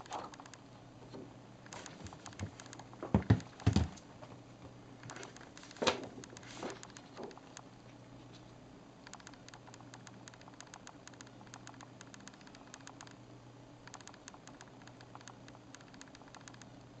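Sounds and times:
faint steady hum: 0.0s - 17.0s
fingernails tapping screen film: 1.7s - 3.9s, 9.1s - 13.2s, 13.9s - 16.9s.

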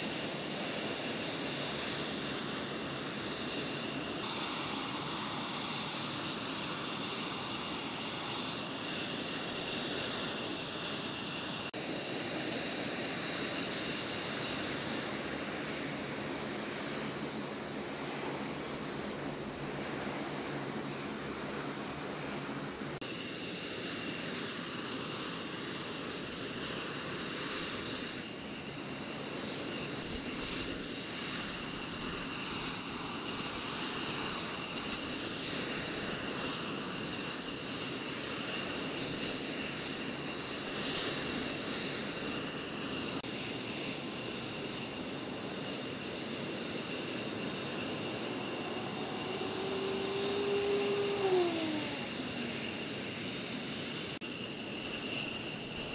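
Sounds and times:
aircraft engines rushing: 0.0s - 55.9s
high engine whines: 42.5s - 55.9s
tone sliding down in pitch: 47.8s - 52.3s.

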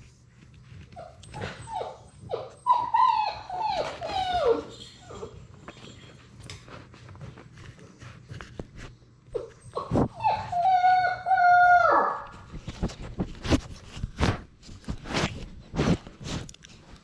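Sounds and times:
puppy whining: 0.8s - 6.2s, 9.3s - 12.5s.

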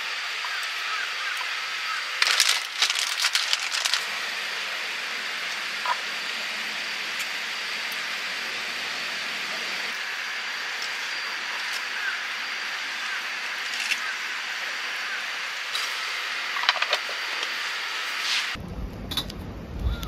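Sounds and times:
outdoor hiss: 0.0s - 18.6s
low rumble: 18.6s - 20.0s.

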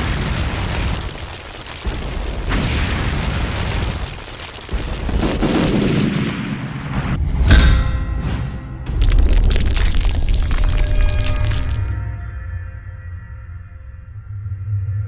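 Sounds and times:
deep rumbling booms: 0.0s - 8.0s
sharp loud hit: 7.0s - 10.2s.

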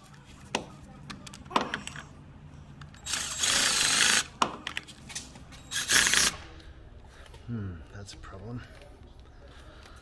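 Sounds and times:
power drill running: 3.0s - 4.3s, 5.7s - 6.3s.

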